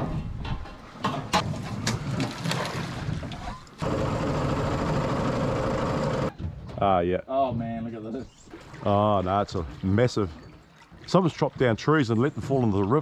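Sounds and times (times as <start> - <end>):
knocks and splashes: 0.0 - 3.8, 8.4 - 13.0
boat engine running: 3.8 - 6.3.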